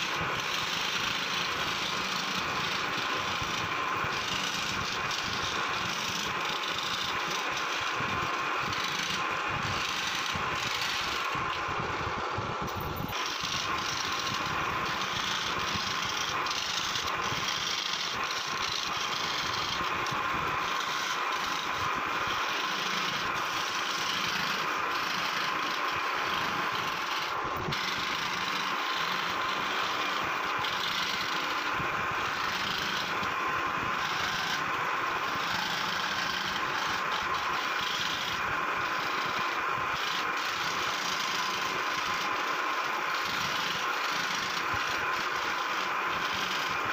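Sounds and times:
electric scroll saw cutting wood: 0.0s - 46.9s.

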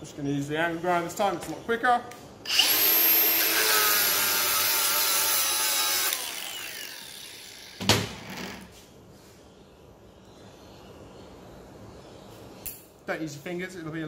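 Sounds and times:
angle grinder cutting metal: 2.5s - 7.8s.

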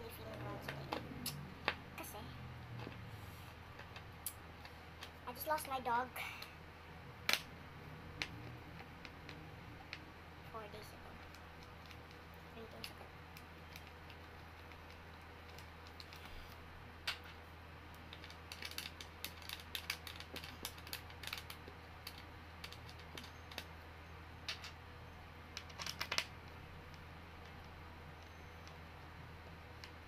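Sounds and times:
steady low hum: 0.0s - 30.0s
small metal clicks and rattling: 18.0s - 23.7s, 25.6s - 26.3s.

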